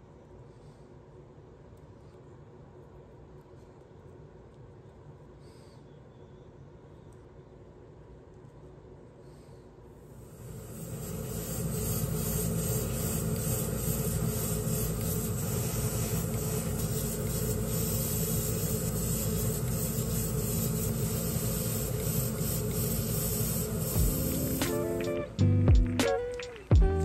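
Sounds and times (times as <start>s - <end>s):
airbrush spraying hiss: 9.3s - 25.4s
low motor hum: 10.3s - 26.0s.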